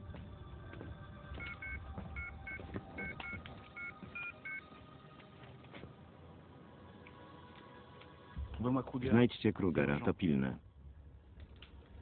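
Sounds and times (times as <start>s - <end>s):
phone keypad beeps: 1.4s - 4.6s.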